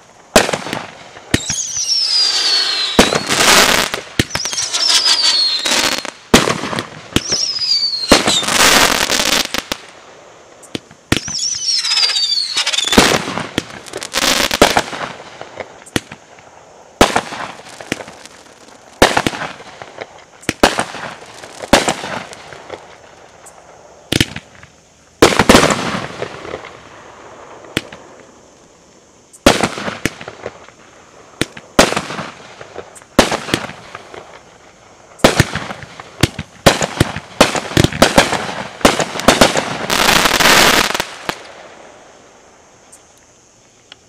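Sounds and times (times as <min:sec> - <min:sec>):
firework crackling: 0:00.0 - 0:42.8.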